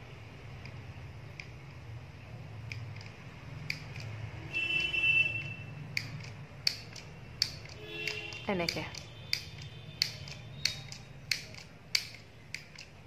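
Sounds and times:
mini sewing machine clicks: 2.6s - 4.2s, 5.4s - 13.0s.

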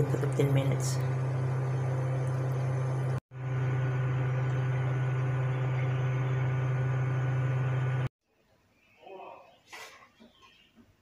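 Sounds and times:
appliance motor humming: 0.0s - 8.1s.

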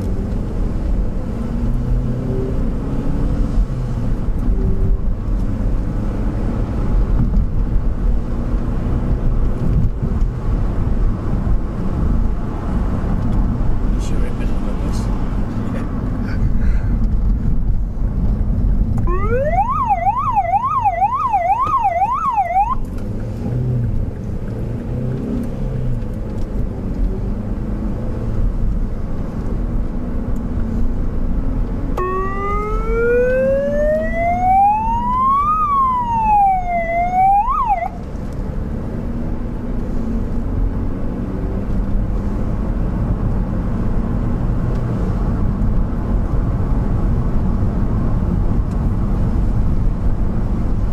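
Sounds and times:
engine and road noise: 0.0s - 50.9s
siren yelp and wail: 19.0s - 22.8s, 32.0s - 38.0s.

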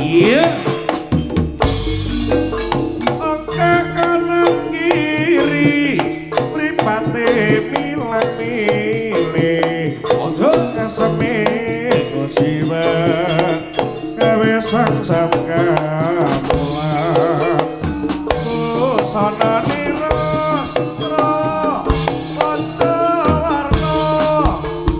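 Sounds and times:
gongs: 0.0s - 8.2s
hand drums beating: 0.0s - 24.9s
wavering high melody: 0.0s - 24.9s.

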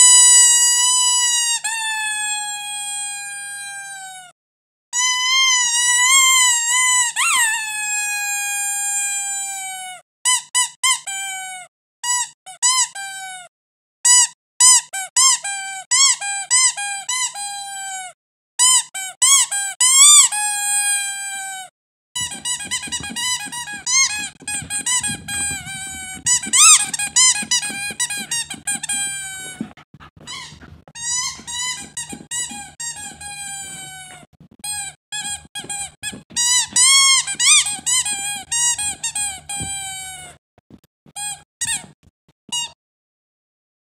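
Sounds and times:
squeaky toy squeaking: 0.0s - 4.3s, 5.0s - 13.5s, 14.1s - 21.6s, 22.2s - 40.4s, 41.2s - 42.8s
dog chewing toy: 22.2s - 40.4s.

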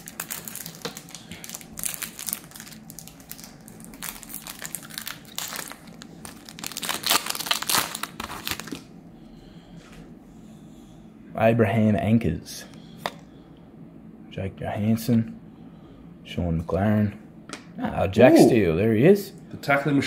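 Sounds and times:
foil wrapper crinkling: 0.0s - 8.9s.

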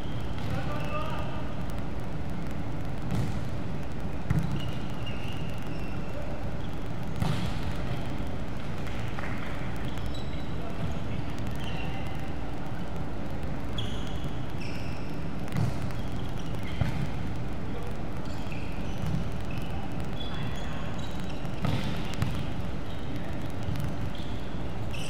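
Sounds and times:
steady background hum: 0.0s - 25.0s
shoes squeaking on floor: 9.8s - 10.5s, 13.8s - 15.2s.

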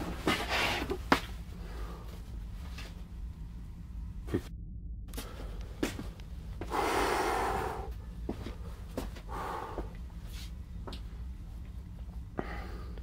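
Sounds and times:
low steady hum: 0.0s - 13.0s
person breathing out heavily: 6.6s - 10.5s, 12.4s - 13.0s.

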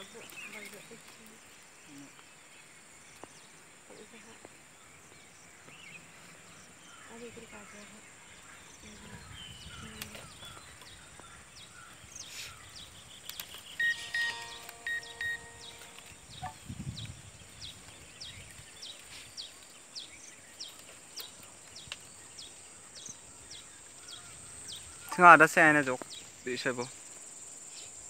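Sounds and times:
birds chirping: 0.0s - 27.0s
steady high hiss: 13.4s - 16.7s, 21.9s - 28.0s.

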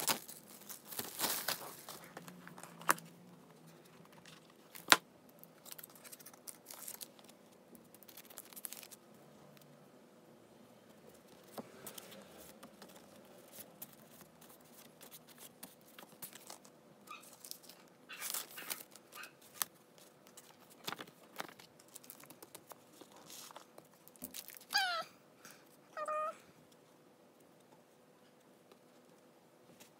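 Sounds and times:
paper rustling and crinkling: 0.0s - 9.0s, 11.1s - 24.8s
cat meowing: 24.7s - 25.1s, 26.0s - 26.4s.

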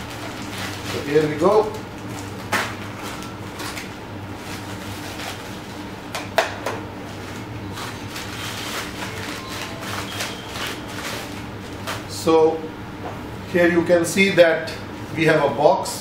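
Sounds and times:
plastic bag rustling and tearing: 0.0s - 5.8s, 7.1s - 12.1s
steady low hum: 0.0s - 16.0s.

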